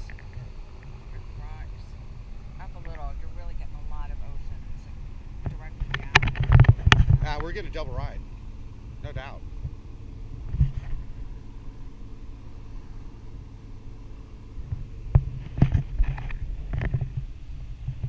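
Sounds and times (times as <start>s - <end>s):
wind buffeting microphone: 0.0s - 13.2s.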